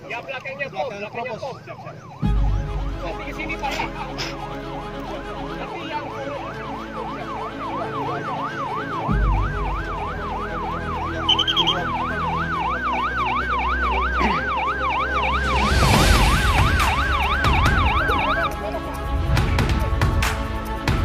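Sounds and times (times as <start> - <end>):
siren yelping: 0.0 - 4.2, 5.7 - 18.6
short high beeps: 11.3 - 11.8.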